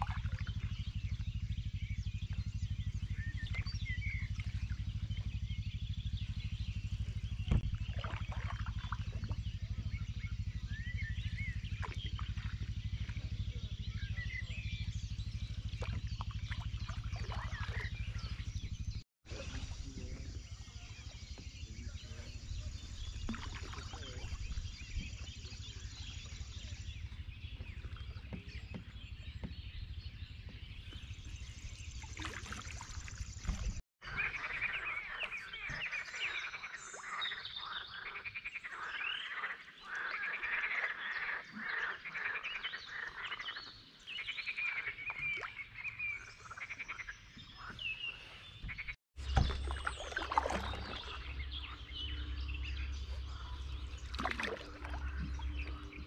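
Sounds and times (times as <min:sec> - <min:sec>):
low steady rumble: 0:00.0 - 0:41.0, 0:45.6 - 0:56.0
frogs croaking in chorus: 0:34.0 - 0:45.5.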